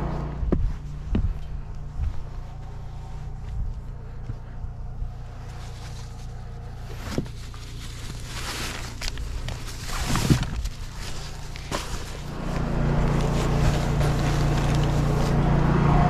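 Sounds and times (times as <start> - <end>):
footsteps on gravel: 0.0 - 4.6, 6.9 - 15.4
steady low hum: 0.0 - 16.0
plastic bags rustling: 4.0 - 15.4.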